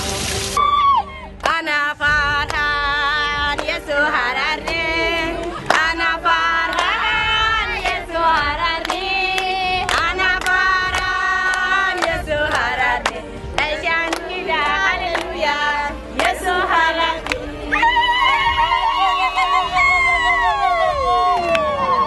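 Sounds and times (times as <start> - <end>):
hand claps: 1.4 - 1.6, 2.4 - 2.7, 3.5 - 3.8, 5.4 - 7.1, 7.8 - 15.5, 16.2 - 17.4
women singing together: 1.4 - 22.0.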